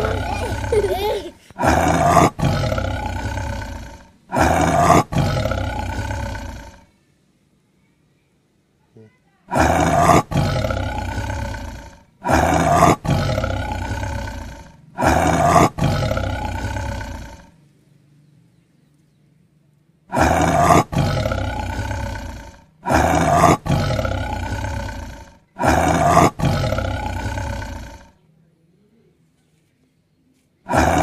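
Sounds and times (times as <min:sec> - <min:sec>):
lion roaring: 0:00.0 - 0:06.9, 0:09.5 - 0:17.6, 0:20.1 - 0:28.2, 0:30.7 - 0:31.0.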